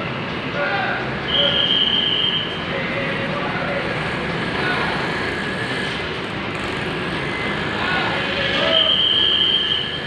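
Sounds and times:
people's voices: 0.4s - 5.9s, 7.3s - 9.8s
high-pitched whistle-like tone: 1.3s - 2.6s, 8.6s - 10.0s
bus engine running: 2.6s - 10.0s.

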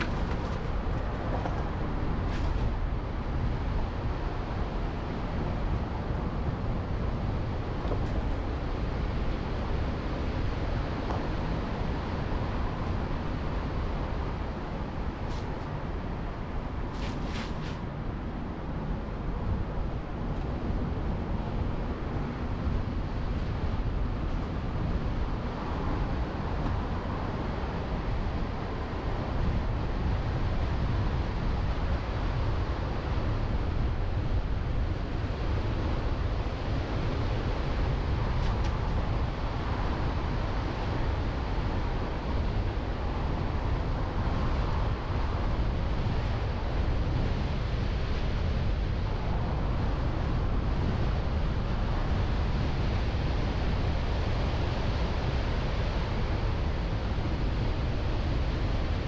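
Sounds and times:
car road noise: 0.0s - 17.9s
wind hitting microphone: 0.0s - 59.0s.

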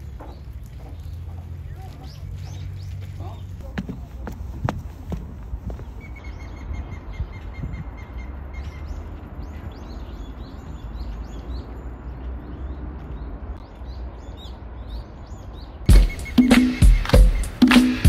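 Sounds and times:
small birds chirping: 0.0s - 18.0s
rapid bird trill: 15.9s - 18.0s.

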